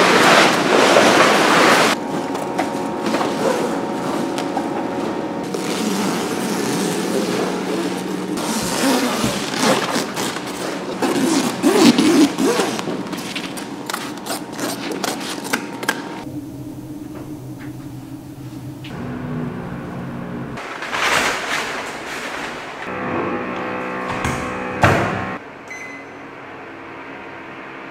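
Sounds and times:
low steady hum: 0.1s - 20.6s
tent fabric crackling and ripping: 5.4s - 15.5s.

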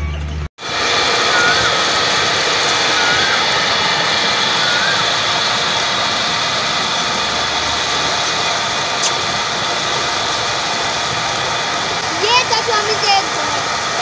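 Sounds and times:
pump mechanical drone: 0.0s - 14.0s
water gushing into a tank: 0.6s - 14.0s.

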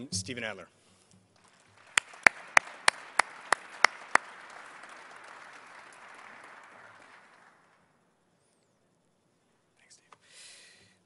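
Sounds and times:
audience applauding: 1.4s - 8.0s
loud single claps: 1.6s - 7.5s.

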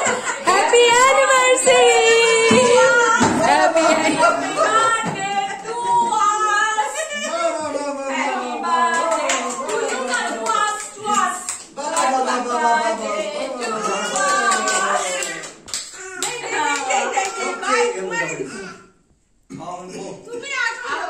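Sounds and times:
group of voices singing: 0.0s - 7.0s
hands clapping: 8.9s - 13.1s, 13.7s - 17.5s.

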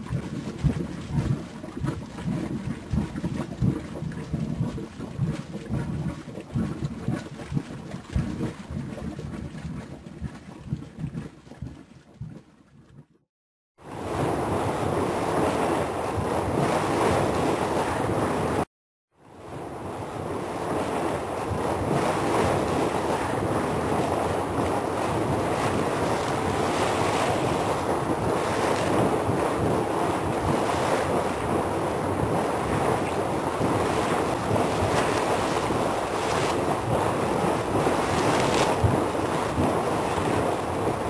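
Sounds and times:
steady rushing noise: 19.6s - 41.0s.

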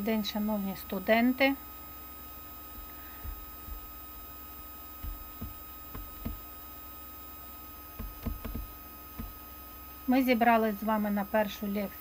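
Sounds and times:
steady electrical hum: 0.0s - 12.0s
faint low knocks: 3.2s - 3.9s, 5.0s - 6.4s, 8.0s - 9.4s.

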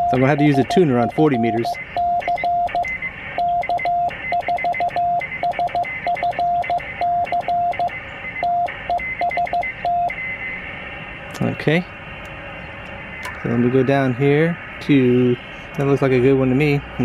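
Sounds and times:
morse code beeps: 0.0s - 10.4s.

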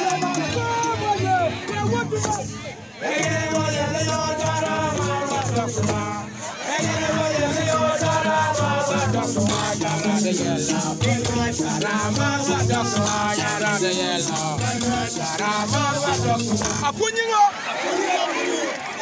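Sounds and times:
voices singing: 0.0s - 19.0s
shaker rattling: 4.4s - 17.0s
thumb pianos plucked: 7.0s - 17.0s.

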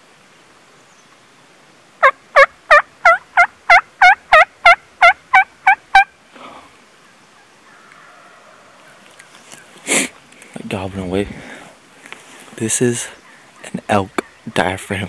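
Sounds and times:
turkey call yelps: 2.0s - 6.1s.

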